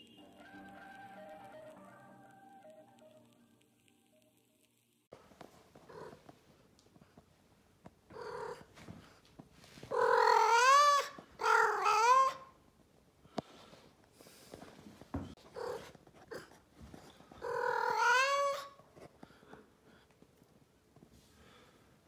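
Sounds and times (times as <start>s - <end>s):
cat meowing: 9.9s - 12.6s, 17.4s - 18.8s.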